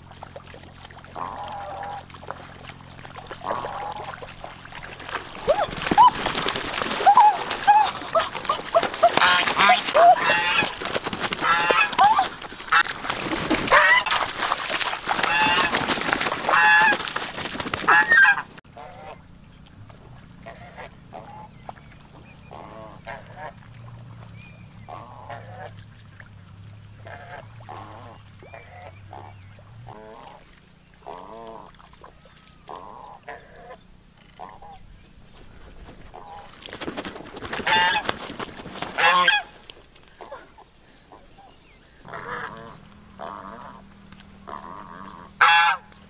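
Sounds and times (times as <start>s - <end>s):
geese honking: 1.1s - 2.4s, 3.2s - 4.8s, 7.0s - 13.0s, 13.6s - 19.2s, 22.4s - 23.6s, 27.0s - 30.4s, 37.6s - 38.2s, 38.8s - 39.6s, 41.1s - 46.0s.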